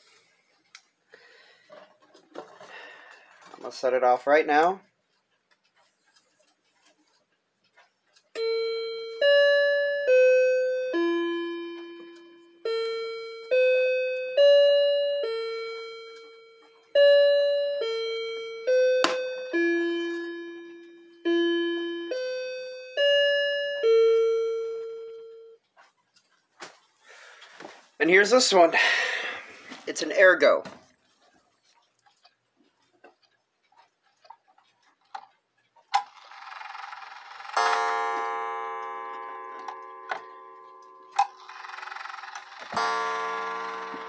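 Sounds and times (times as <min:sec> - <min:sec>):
mantel clock chiming melody: 0:08.3 - 0:25.7, 0:36.0 - 0:44.0.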